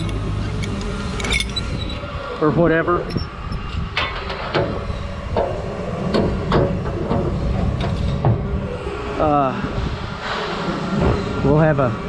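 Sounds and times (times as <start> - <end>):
truck engine rumbling: 0.0 - 12.0
sharp clicks and knocks: 4.0 - 8.4.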